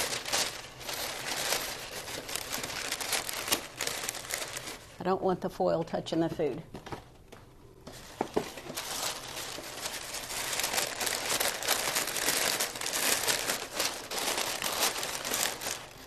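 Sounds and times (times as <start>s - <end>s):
parchment paper crinkling: 0.0s - 5.0s, 7.8s - 16.0s.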